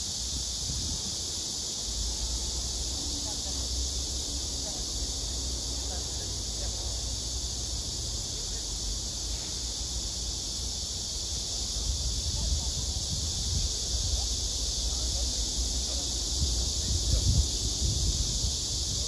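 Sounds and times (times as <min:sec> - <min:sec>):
wind rumble on microphone: 0:00.0 - 0:01.4, 0:11.7 - 0:15.0, 0:15.8 - 0:19.0
cicadas buzzing: 0:00.0 - 0:19.0.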